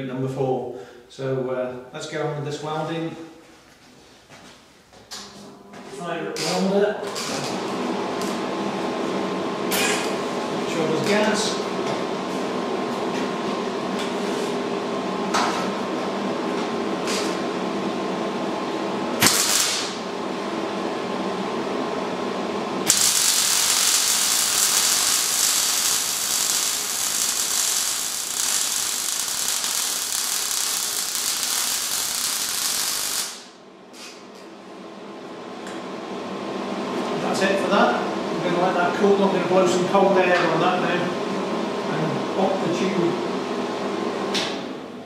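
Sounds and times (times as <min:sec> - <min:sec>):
welder hum: 0:07.1 - 0:34.2
arc welding crackle: 0:19.2 - 0:20.1, 0:22.8 - 0:34.2.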